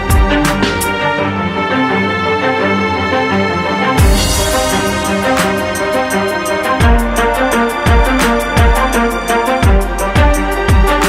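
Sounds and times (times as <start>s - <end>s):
deep kick drum: 0.0s - 0.8s, 4.0s - 11.0s
electronic music with steady beat: 0.0s - 2.4s, 3.2s - 11.0s.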